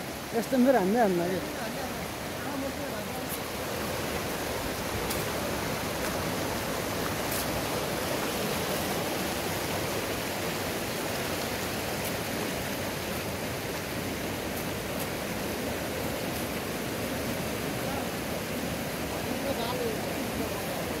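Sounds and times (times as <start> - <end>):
river rushing over rapids: 0.0 - 21.0.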